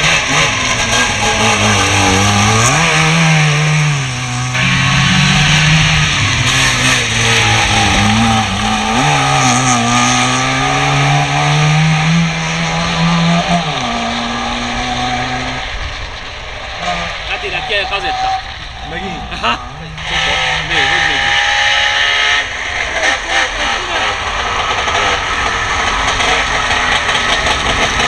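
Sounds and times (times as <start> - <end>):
small two-stroke car engine revving: 0.0 - 16.0, 18.9 - 28.0.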